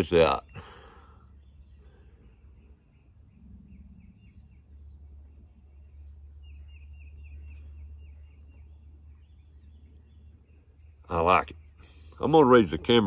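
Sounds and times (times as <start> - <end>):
birds calling: 0.0 - 13.0
wind rumble on microphone: 2.5 - 5.9.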